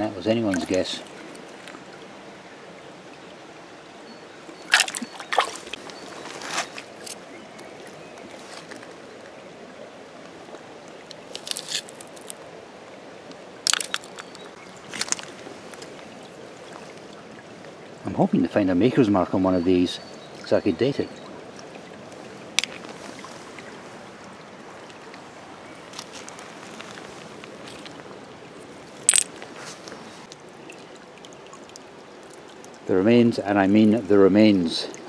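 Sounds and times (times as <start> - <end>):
water trickling over stones: 0.0 - 3.4, 4.2 - 35.0
pebbles knocking together: 11.1 - 12.4, 13.7 - 15.3, 29.0 - 29.4.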